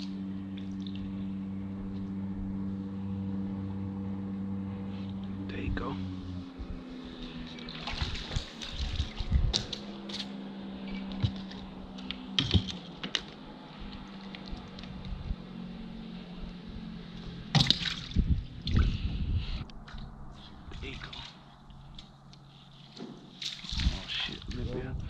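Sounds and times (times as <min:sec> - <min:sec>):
water splashing and sloshing: 0:00.0 - 0:02.1, 0:06.0 - 0:15.4, 0:16.8 - 0:19.2, 0:19.8 - 0:24.9
low motor hum: 0:00.0 - 0:25.0.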